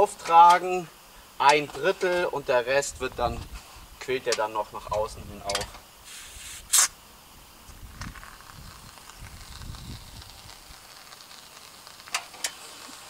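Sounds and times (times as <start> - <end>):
foam gun hissing: 5.8 - 13.0.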